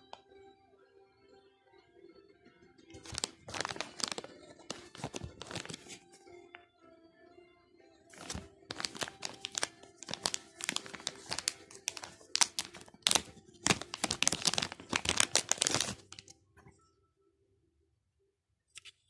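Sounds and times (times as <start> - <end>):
plastic pouch crinkling: 3.0 - 6.1, 8.1 - 16.3.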